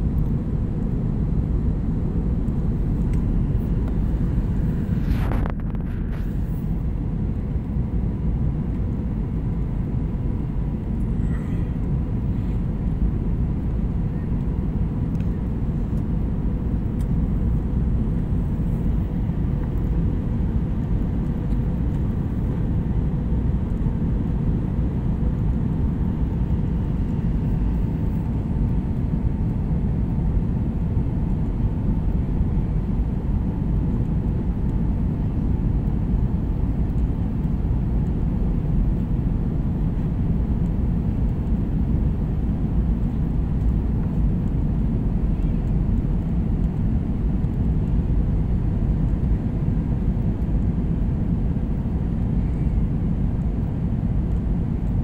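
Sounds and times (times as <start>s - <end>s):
faint steady hum: 0.0s - 55.0s
jet engines droning: 0.0s - 55.0s
rushing air: 3.4s - 7.0s.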